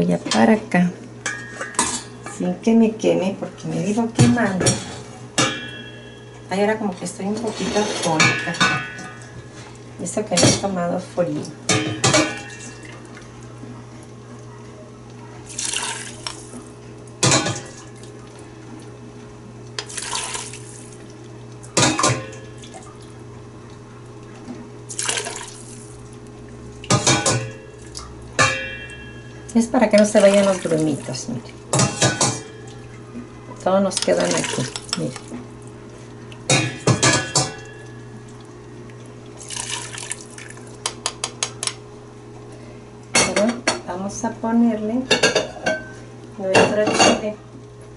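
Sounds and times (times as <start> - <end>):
low steady hum: 0.0 - 47.9
broth splashing through strainer: 15.4 - 16.7, 19.8 - 23.2, 24.9 - 26.2, 34.0 - 40.9.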